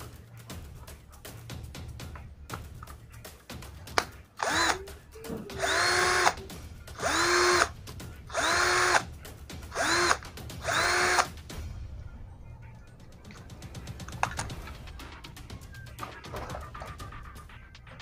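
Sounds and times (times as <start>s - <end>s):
cordless drill motor whine: 4.4s - 4.8s, 5.6s - 6.4s, 7.0s - 7.7s, 8.3s - 9.0s, 9.7s - 11.3s.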